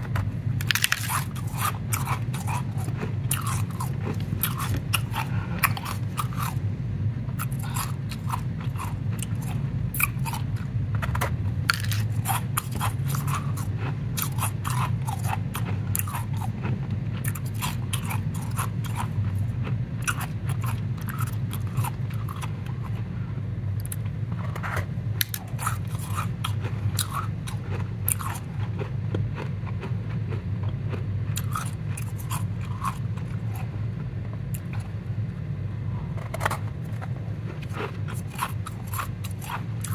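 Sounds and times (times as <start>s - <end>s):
steady low hum: 0.0s - 39.9s
ice crunching: 0.6s - 6.5s, 11.7s - 13.6s.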